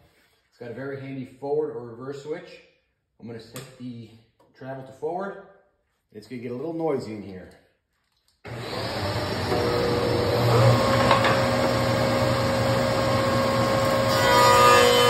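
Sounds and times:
shaper and dust collector whirring: 8.5 - 15.0.

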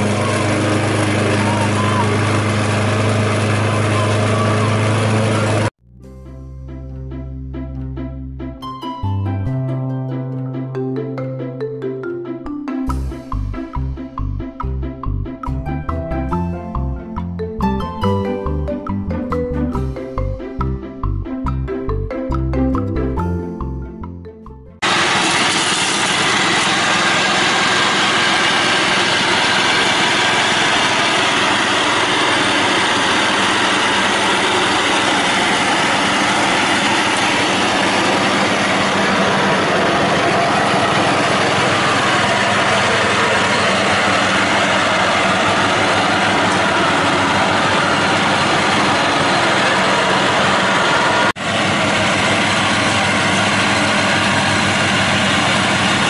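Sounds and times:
lawn tractor engine mowing: 0.0 - 5.8, 24.8 - 56.0.

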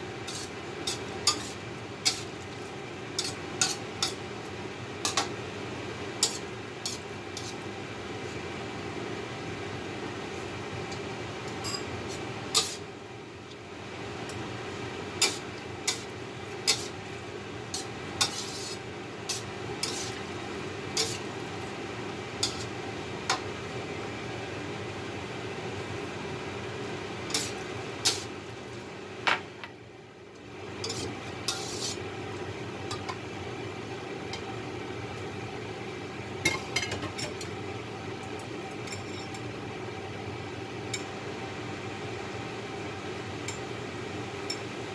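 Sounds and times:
steady background hum: 0.0 - 44.9
spatula scraping a wok: 0.2 - 2.4, 3.2 - 4.2, 6.2 - 7.6, 11.7 - 12.8, 15.2 - 17.0, 17.7 - 20.2, 21.0 - 21.3, 22.4 - 22.8, 27.3 - 28.3, 30.8 - 32.0.

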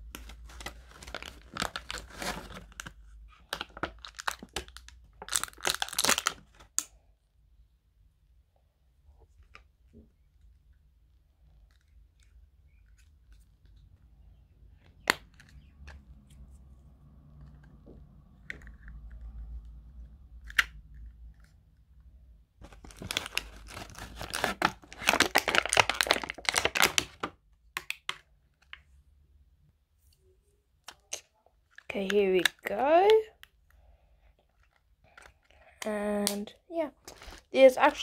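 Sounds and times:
plastic packaging crinkling and tearing: 0.0 - 6.9, 22.6 - 27.4.

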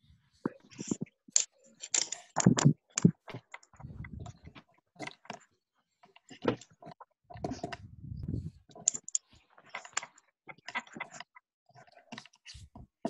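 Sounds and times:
low rumbling noise: 3.8 - 4.4, 7.4 - 8.6.

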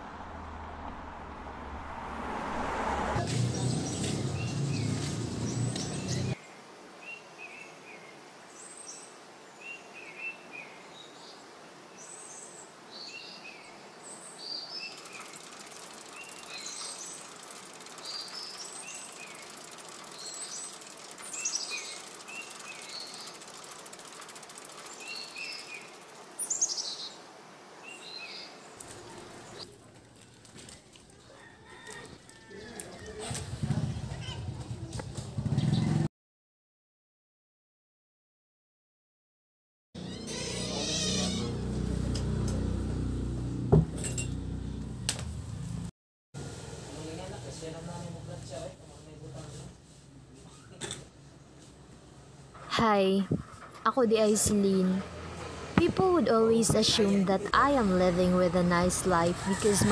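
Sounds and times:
loud rushing noise: 0.0 - 5.5
small birds chirping: 3.5 - 6.4, 12.0 - 27.2, 27.8 - 31.3.

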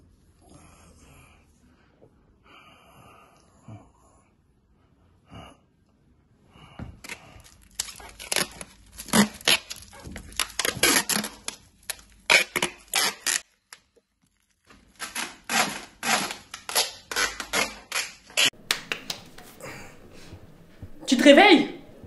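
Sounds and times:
packing tape ripping off roll: 7.0 - 18.5.

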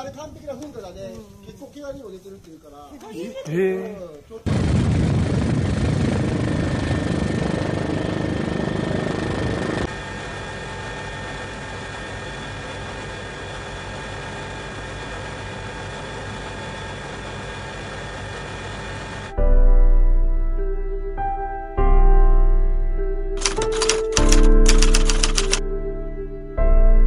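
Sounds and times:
aircraft engine drone: 4.5 - 19.4, 23.4 - 26.0.

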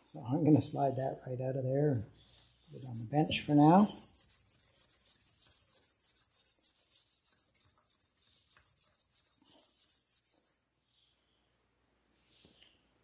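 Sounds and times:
scouring pad scrubbing metal shaft: 2.7 - 10.5.

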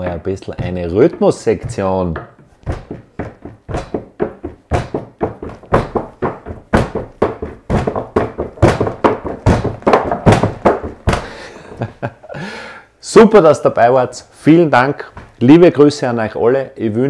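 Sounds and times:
hands drumming on a tabletop: 0.6 - 11.4.

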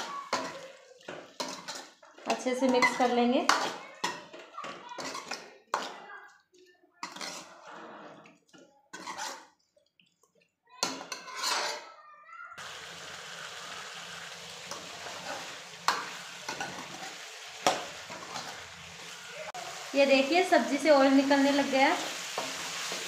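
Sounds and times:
food sizzling in pan: 0.0 - 6.0, 7.0 - 8.3, 8.9 - 9.6, 12.6 - 23.0
ladle scraping metal pan: 0.0 - 6.0, 7.0 - 9.6, 10.8 - 12.0, 14.6 - 19.6.

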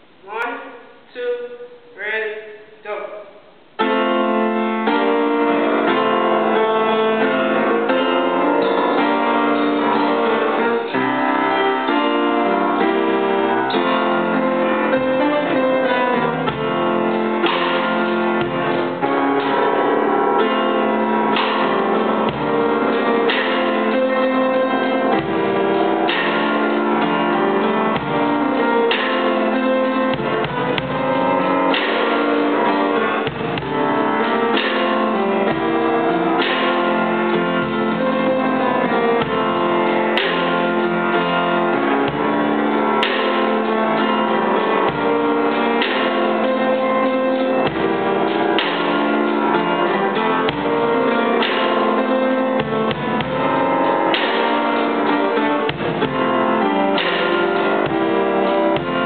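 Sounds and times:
upright piano chords: 0.0 - 59.0
drum kit playing: 1.7 - 59.0
kick-drum thumps: 33.2 - 33.9, 52.6 - 53.5.

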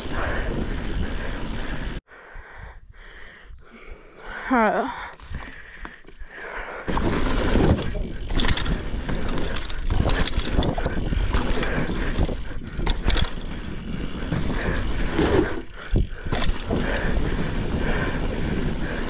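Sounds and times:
bike tyres rumbling on dirt: 0.0 - 2.0, 6.6 - 19.0
riding wind noise: 0.0 - 4.0, 5.2 - 19.0
bike knocks and rattles: 6.8 - 19.0
rear hub ratcheting: 7.0 - 17.2.

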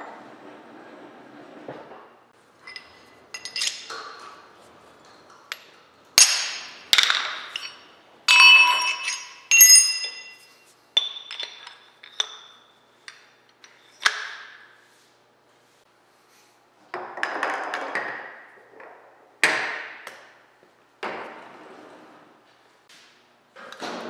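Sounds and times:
metal tools knocking and clinking: 2.6 - 4.4, 5.5 - 14.4.

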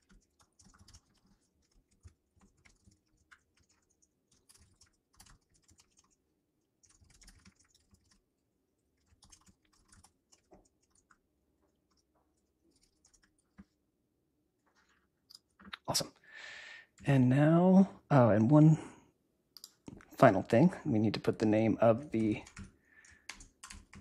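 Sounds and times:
typing on a keyboard: 0.0 - 6.2, 6.8 - 8.2, 9.0 - 11.2, 11.9 - 13.8, 22.0 - 24.0.

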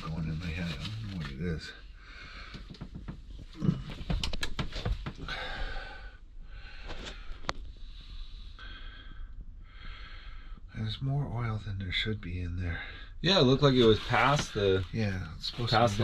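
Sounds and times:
paper rustling: 13.8 - 16.0.

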